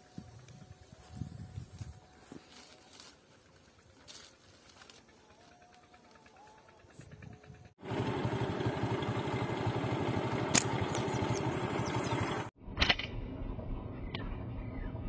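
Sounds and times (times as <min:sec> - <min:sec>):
engine-like running noise: 0:00.0 - 0:15.0
slingshot snap: 0:10.5 - 0:11.4.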